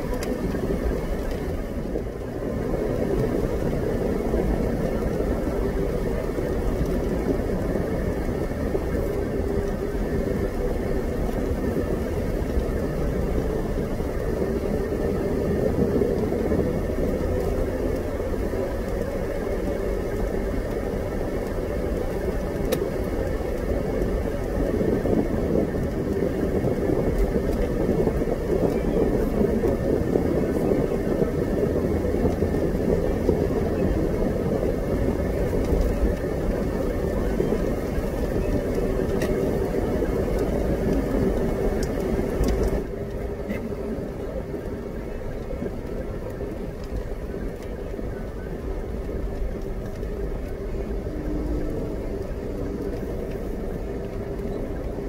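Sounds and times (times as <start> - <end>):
vehicle engine and tyre noise: 0.0 - 55.0.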